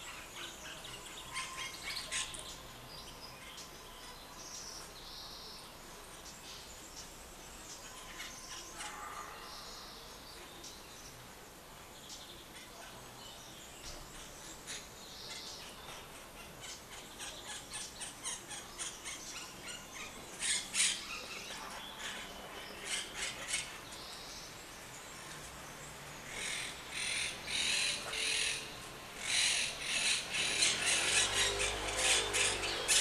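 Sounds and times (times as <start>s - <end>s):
parakeets chattering: 16.3s - 23.9s, 26.2s - 33.0s.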